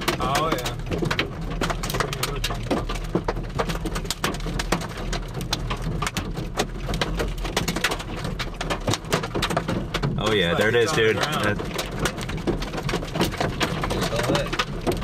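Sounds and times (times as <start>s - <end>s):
rain tapping on a vehicle: 0.0s - 15.0s.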